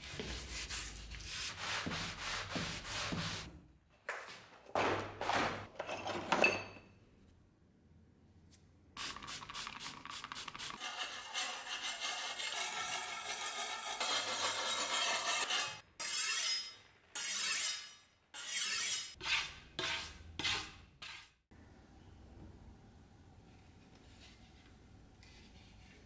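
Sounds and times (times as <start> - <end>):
sharpening stone scraping steel blade: 10.8 - 21.3.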